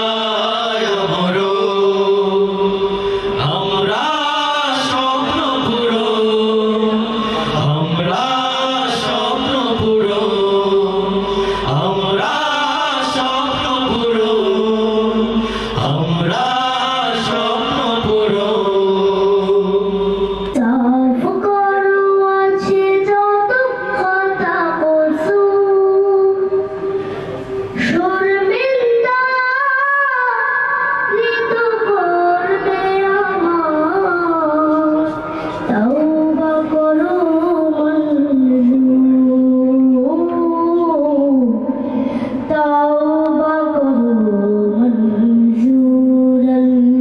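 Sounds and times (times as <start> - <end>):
men singing together: 0.0 - 20.6
boy singing into microphone: 0.0 - 47.0
low hum: 5.4 - 21.2.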